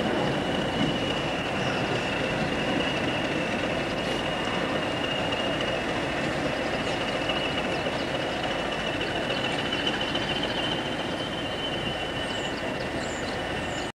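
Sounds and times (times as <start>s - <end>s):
steady high whistle: 0.0s - 13.4s
diesel locomotive engine running: 0.0s - 13.9s.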